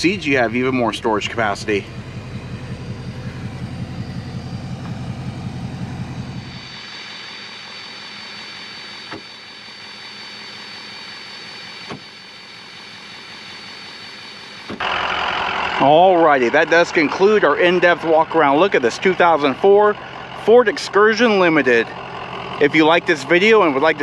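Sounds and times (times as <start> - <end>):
low pulsing rumble: 0.0 - 8.0, 14.8 - 24.0.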